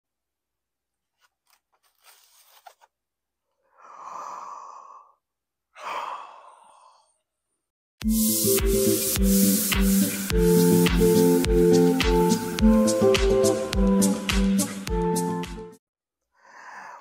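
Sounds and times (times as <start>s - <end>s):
person sighing: 3.7s - 7.1s
electronic music with steady beat: 8.0s - 15.8s.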